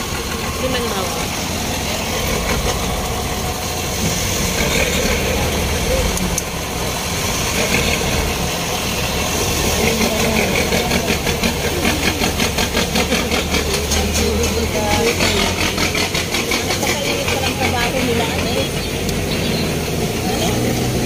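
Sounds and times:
rapid engine clatter: 0.0 - 21.0
truck engine rumble: 0.0 - 21.0.

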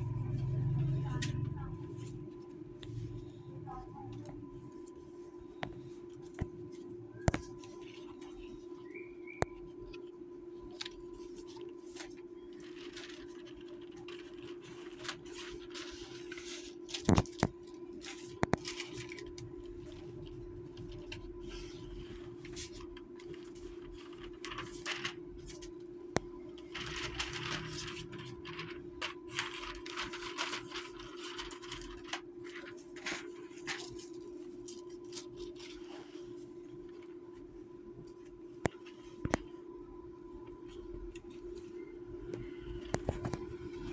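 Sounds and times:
steady hum: 0.0 - 43.9
plastic film crinkling: 10.7 - 21.8, 22.4 - 25.7, 26.6 - 36.3.

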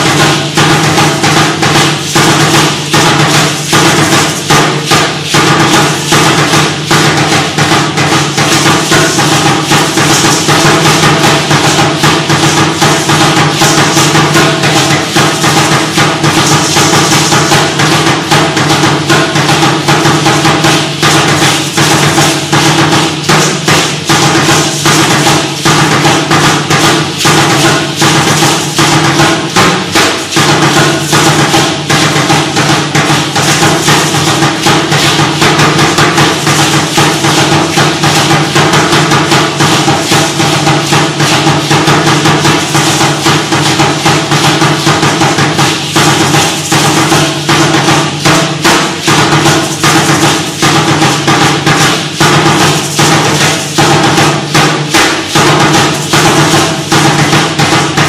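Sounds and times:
upright drum beaten fast: 0.0 - 58.0.

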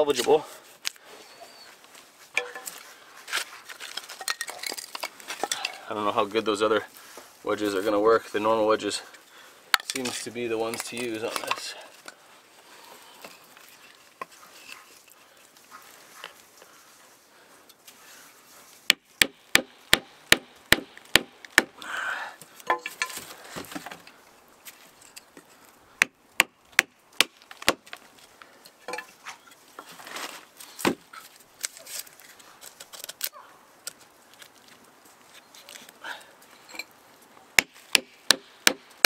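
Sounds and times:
sharp knocks on wooden wedges: 18.9 - 21.8, 37.6 - 39.0.

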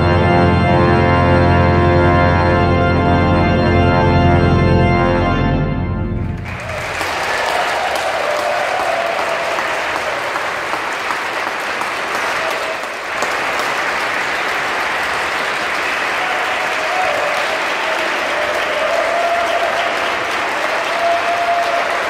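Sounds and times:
audience applauding: 6.3 - 22.0.

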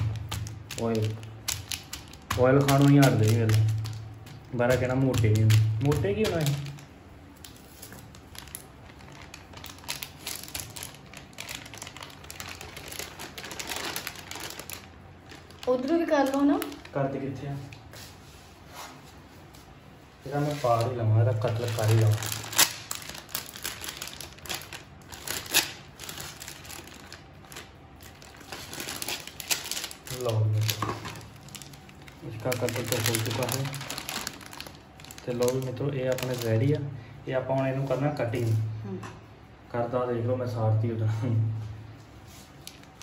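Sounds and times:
hands working dough: 0.0 - 9.4
crunching and crumpling by hand: 0.0 - 17.9, 20.3 - 36.9, 42.2 - 43.0.

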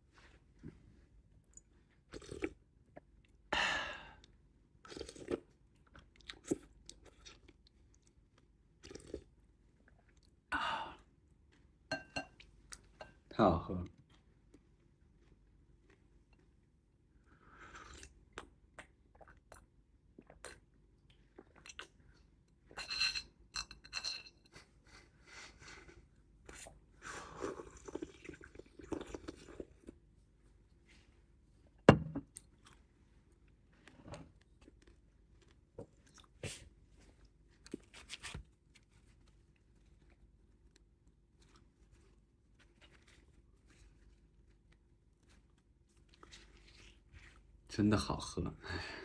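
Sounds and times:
slurping soup: 2.0 - 2.6, 4.8 - 5.5, 8.8 - 9.4, 26.5 - 30.0
person chewing: 2.0 - 3.4, 4.8 - 8.1, 8.8 - 10.4, 17.6 - 22.0, 26.5 - 30.0, 34.4 - 38.2.

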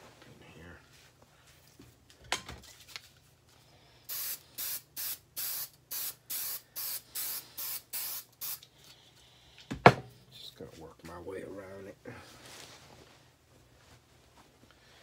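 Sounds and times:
aerosol can spraying: 4.1 - 8.7.

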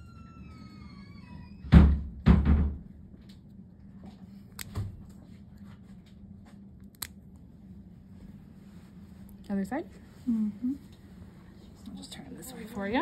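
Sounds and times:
nail clippers clicking: 6.9 - 7.2.

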